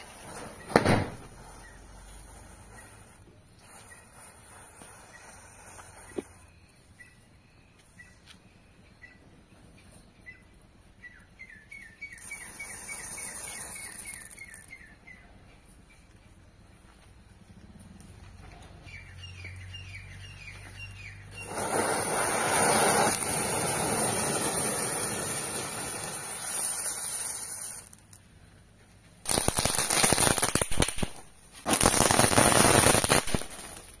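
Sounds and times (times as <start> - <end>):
firecrackers crackling rapidly: 0.0 - 6.4, 12.1 - 14.8, 21.3 - 28.3, 29.2 - 34.0
firework hissing: 0.0 - 7.1, 12.1 - 14.9, 21.3 - 28.2, 29.2 - 34.0.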